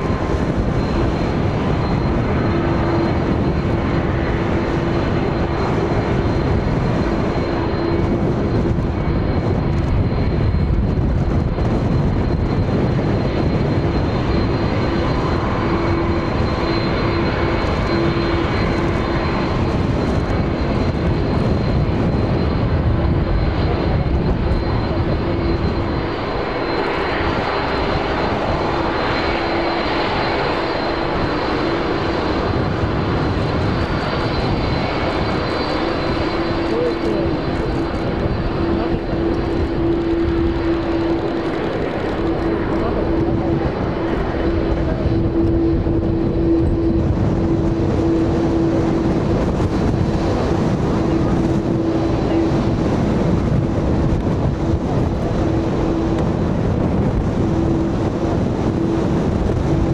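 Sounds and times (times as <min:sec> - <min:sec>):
high engine whine: 0:00.0 - 0:59.9
jet engines idling: 0:00.0 - 0:59.9.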